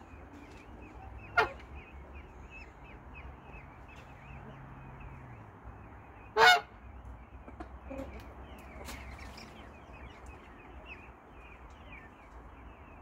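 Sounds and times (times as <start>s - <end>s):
peahen honking call: 6.3s - 6.8s.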